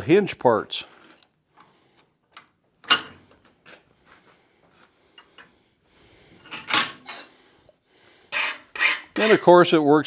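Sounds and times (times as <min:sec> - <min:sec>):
metal clicks and knocks of vise: 0:02.3 - 0:03.3.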